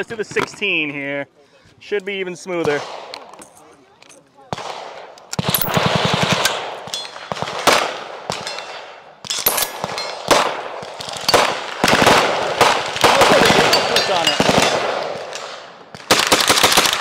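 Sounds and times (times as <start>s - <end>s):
gunshots with short echo: 4.5s - 17.0s.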